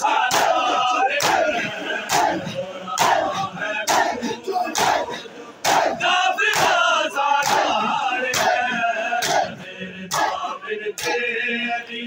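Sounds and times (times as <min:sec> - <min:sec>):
men chanting and shouting: 0:00.0 - 0:12.0
people striking their chests: 0:00.2 - 0:11.3.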